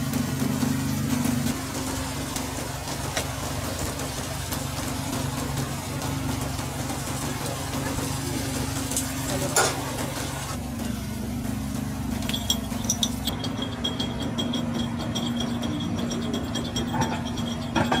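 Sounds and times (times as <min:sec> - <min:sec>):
machine hum: 0:00.0 - 0:18.0
light clinks and clicks: 0:12.2 - 0:18.0.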